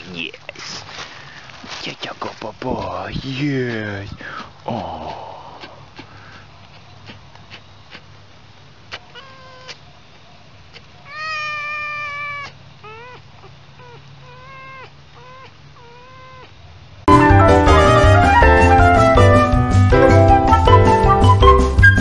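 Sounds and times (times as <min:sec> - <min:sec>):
fox calling: 0:08.8 - 0:09.8, 0:10.7 - 0:16.6.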